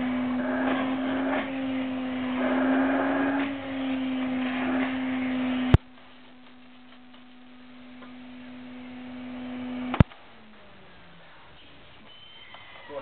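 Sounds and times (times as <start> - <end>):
vacuum cleaner motor humming: 0.0 - 13.0.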